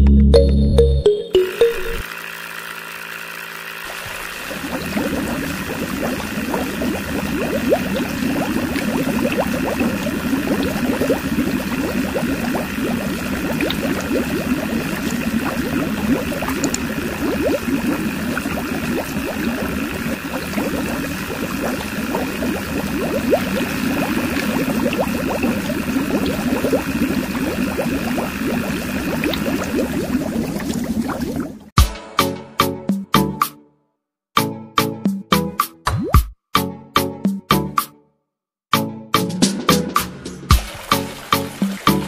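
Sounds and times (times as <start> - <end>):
small motor whine: 1.6 - 7.3
water pouring into tank: 3.9 - 31.7, 40.5 - 42.0.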